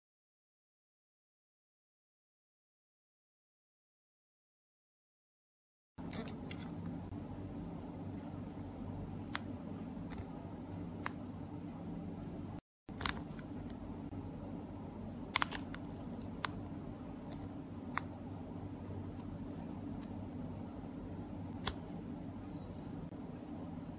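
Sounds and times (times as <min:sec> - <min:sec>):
steady low hum: 0:06.0 - 0:23.9.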